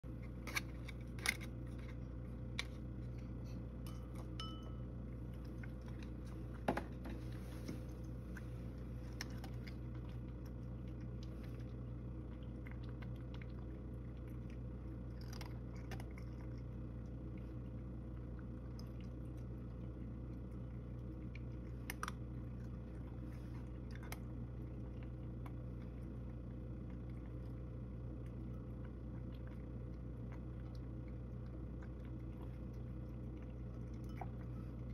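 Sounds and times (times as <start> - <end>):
cat chewing food: 0.0 - 34.9
steady low hum: 0.0 - 34.9
spoon clinking on can and bowl: 3.8 - 4.8.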